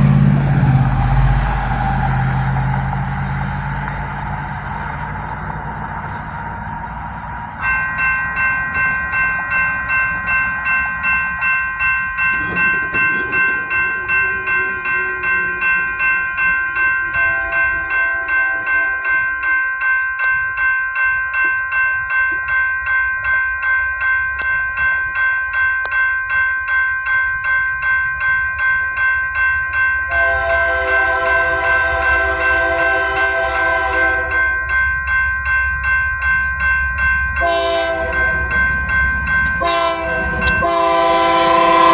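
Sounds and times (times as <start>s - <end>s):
locomotive rumble: 0.0s - 19.8s, 30.0s - 41.9s
crossing bell ringing: 0.0s - 41.9s
train horn: 17.0s - 19.2s, 30.1s - 34.4s, 37.4s - 38.4s, 39.6s - 41.9s.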